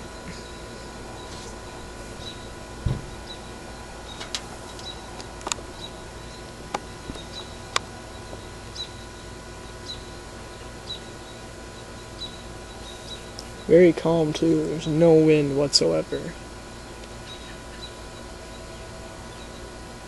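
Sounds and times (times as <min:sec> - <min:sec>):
low thump: 0:02.8 - 0:03.2.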